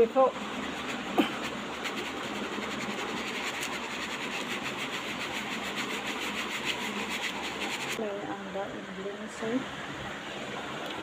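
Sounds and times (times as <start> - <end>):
sieve shaking flour: 0.0 - 8.0.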